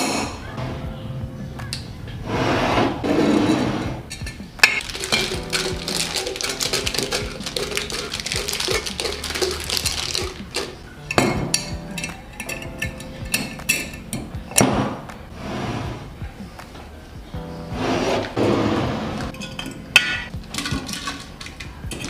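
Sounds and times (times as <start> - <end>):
glass jar clinks: 4.1 - 14.3, 19.3 - 22.0
foil wrappers crinkling: 4.8 - 11.0.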